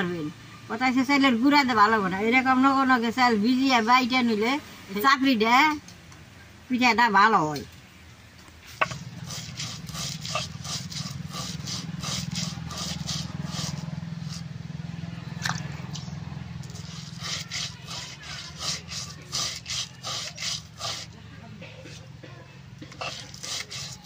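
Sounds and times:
grinding roller rumble and scraping: 8.7 - 24.0.

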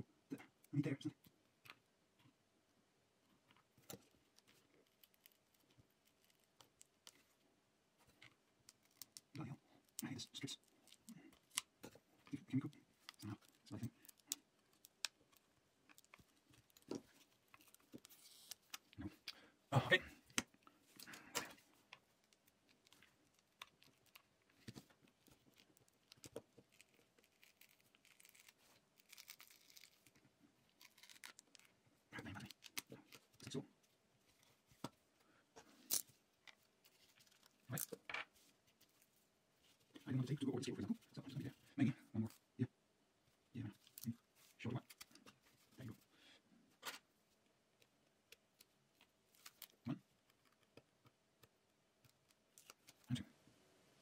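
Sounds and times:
small clicks and rustles: 3.3 - 19.4, 20.2 - 40.1, 46.7 - 53.2.

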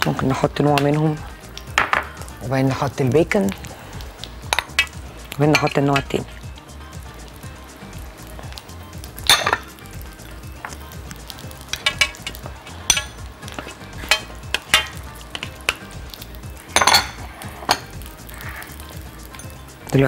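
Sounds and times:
aubergine slices sizzling: 0.0 - 20.0
metal spoon clinking on platter: 9.3 - 9.7, 11.7 - 15.9, 16.7 - 18.0.

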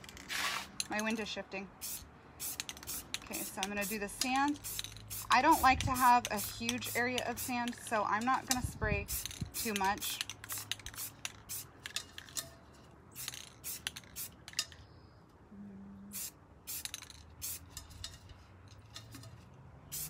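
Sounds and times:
spray can hissing in spurts: 1.8 - 12.0, 13.1 - 14.6, 16.1 - 17.9.

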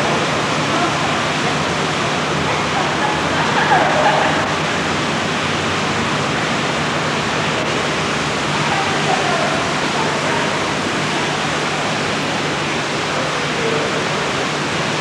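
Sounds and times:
steady rushing noise: 0.0 - 15.0
faint distant voices: 8.6 - 15.0.

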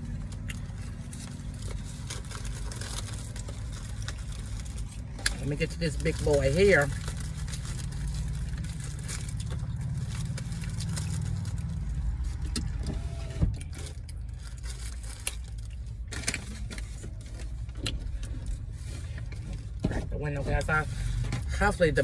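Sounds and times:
car engine idling rumble: 0.0 - 22.0
food packaging rustling: 0.2 - 12.8.

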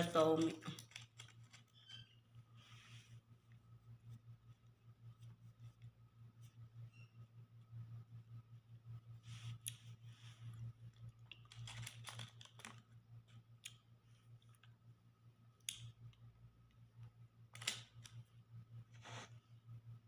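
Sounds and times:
low steady hum: 0.0 - 20.0
small clicks and crackles: 0.1 - 2.1, 10.5 - 14.8.

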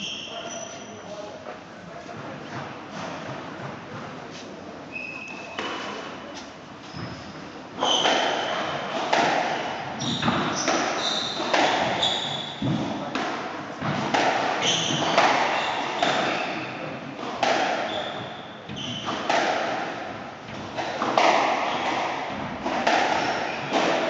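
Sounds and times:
shoes squeaking on wooden floor: 2.9 - 13.1, 14.6 - 16.9, 17.8 - 19.4, 20.5 - 24.0.

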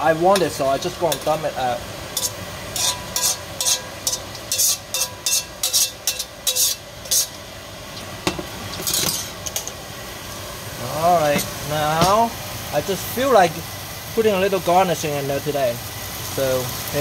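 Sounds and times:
soft sizzle: 0.0 - 17.0
metal ladle scraping a wok: 2.2 - 7.4, 8.7 - 9.7.

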